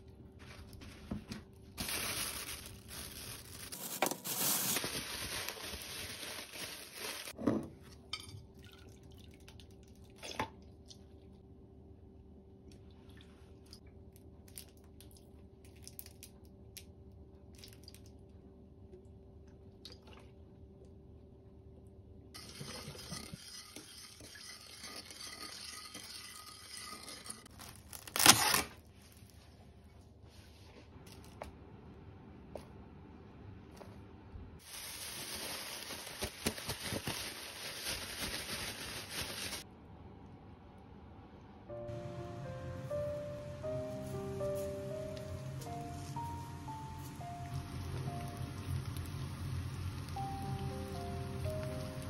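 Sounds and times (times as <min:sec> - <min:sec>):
plastic bag crinkling: 0:01.8 - 0:07.4, 0:27.5 - 0:29.2, 0:34.6 - 0:39.6
liquid pouring and dripping: 0:08.6 - 0:11.2
low steady hum: 0:39.7 - 0:52.0.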